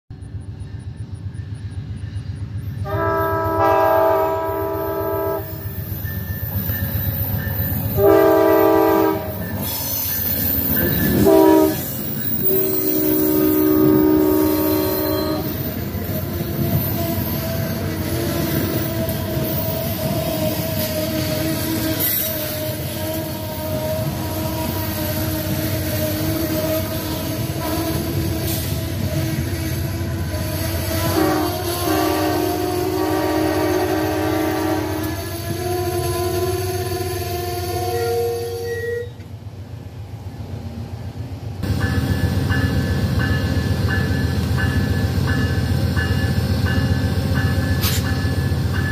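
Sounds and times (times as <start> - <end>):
train wheel noise: 0.1 - 48.9
locomotive air horn blasts: 2.8 - 5.6, 7.9 - 9.6, 11.1 - 15.8, 18.2 - 39.2.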